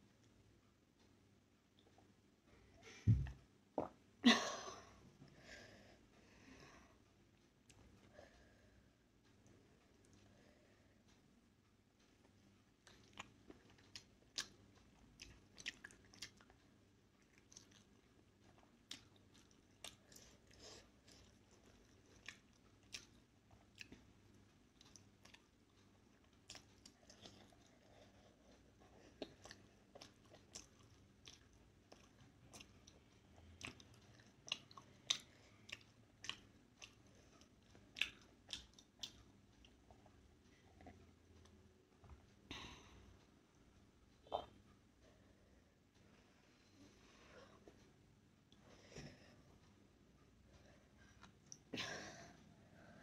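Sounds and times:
close chewing with wet mouth clicks: 12.8 - 24.1, 24.7 - 40.1.

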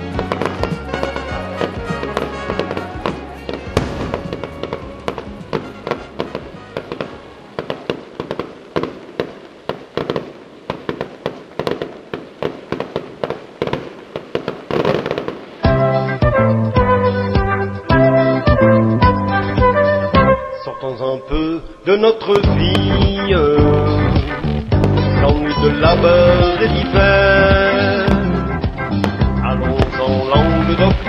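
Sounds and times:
music: 0.0 - 7.9, 15.6 - 31.0
fireworks bangs and crackles: 0.0 - 20.3, 21.9 - 31.0.

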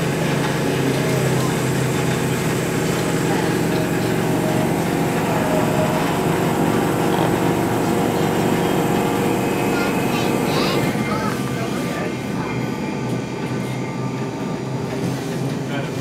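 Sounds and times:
tram motors humming and rumbling: 0.0 - 16.0.

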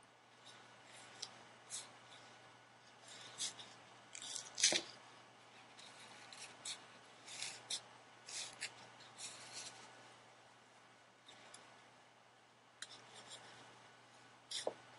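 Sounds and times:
gloves rustling and scraping: 0.4 - 10.2.

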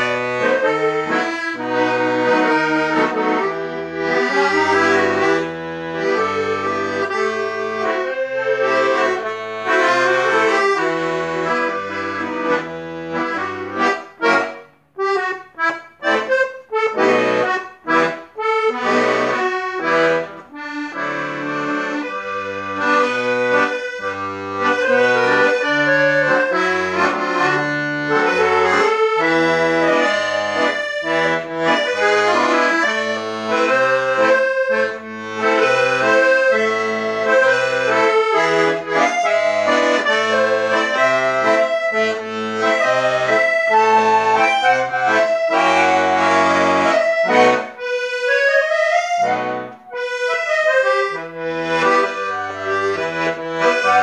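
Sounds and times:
button accordion playing a tango: 0.0 - 54.0.

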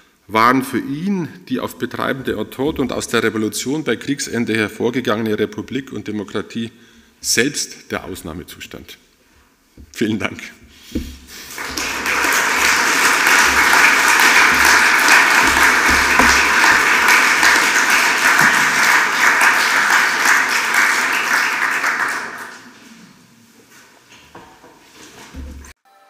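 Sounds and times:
audience applauding: 11.4 - 22.8.

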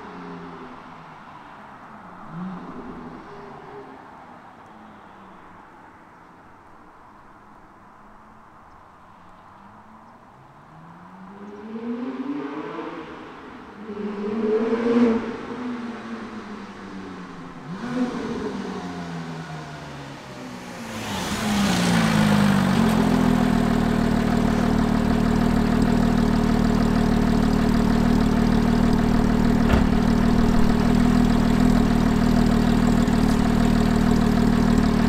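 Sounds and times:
sports car engine approaching: 9.8 - 35.0
car engine idling: 22.1 - 35.0.

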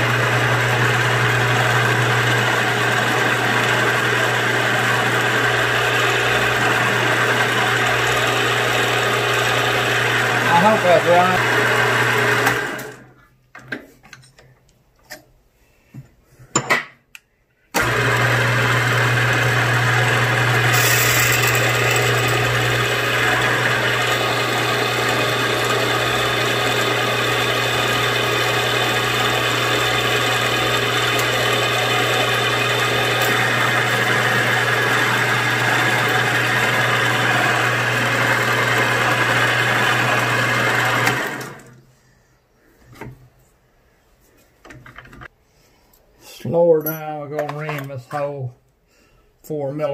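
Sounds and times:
milling machine running: 0.0 - 13.0, 17.8 - 41.6
drill bit boring into metal: 17.8 - 41.3.

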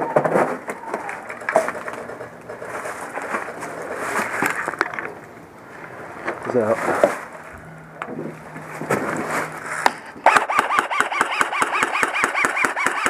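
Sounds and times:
airsoft rifle full-auto burst: 10.2 - 13.0.

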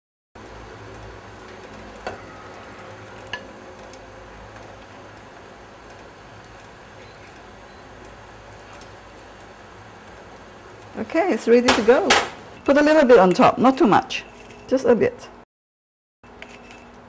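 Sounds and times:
soup boiling hiss: 0.4 - 12.6.

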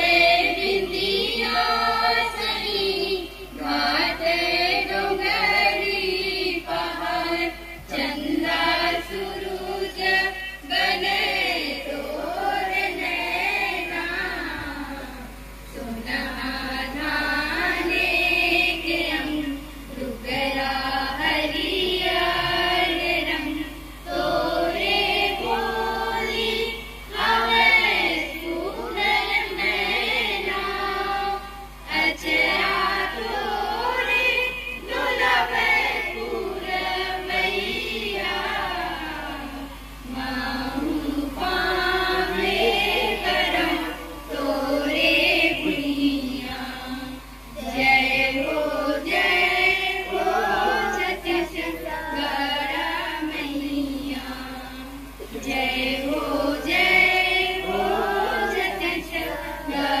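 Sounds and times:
girls singing in chorus: 0.0 - 60.0.

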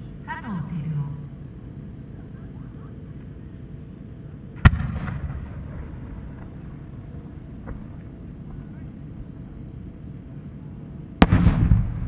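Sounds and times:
rolling echo: 4.5 - 8.6, 11.2 - 12.0.

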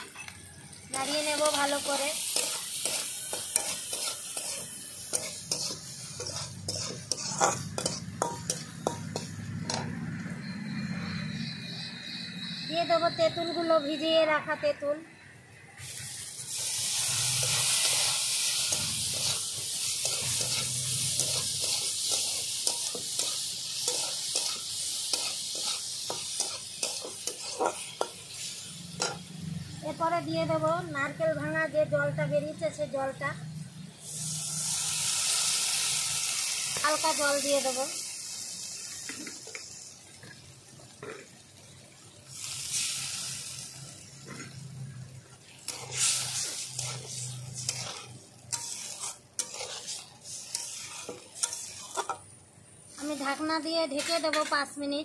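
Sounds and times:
hot oil sizzling: 0.0 - 55.0
metal spatula scraping a pan: 0.9 - 10.0, 16.1 - 29.3, 44.1 - 54.7.

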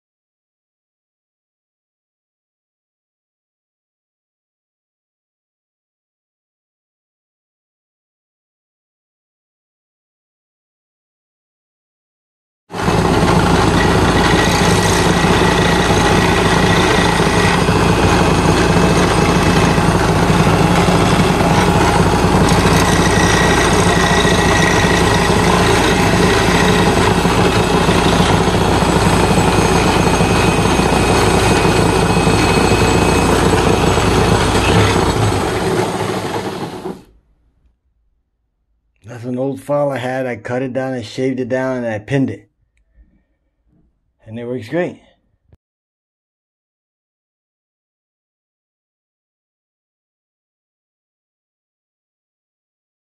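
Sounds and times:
electric saw cutting metal: 12.8 - 37.1.

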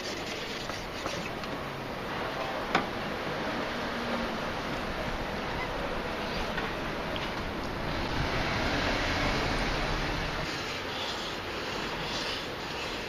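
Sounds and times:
sharpening stone rubbing blade: 10.4 - 13.0.

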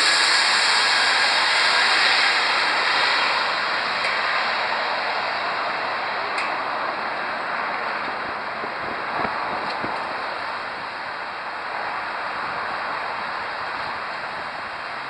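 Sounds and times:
jet engine rushing: 0.0 - 15.0.

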